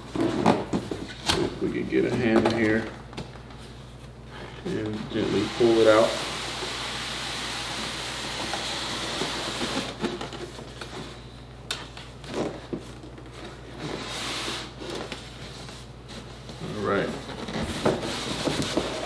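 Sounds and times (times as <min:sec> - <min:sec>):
styrofoam scraping cardboard box: 0:17.2 - 0:19.0.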